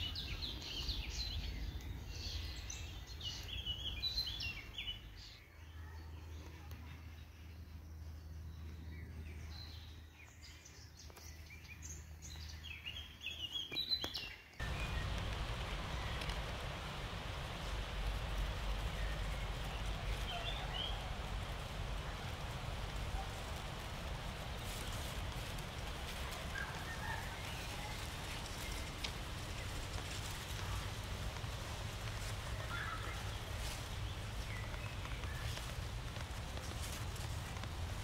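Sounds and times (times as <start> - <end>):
small birds chirping: 0.0 - 38.0
low hum: 14.6 - 38.0
steady rushing noise: 14.6 - 38.0.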